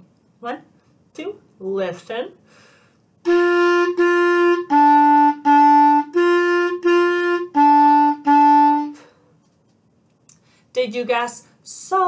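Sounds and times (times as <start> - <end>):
clarinet playing detached notes: 3.2 - 9.1.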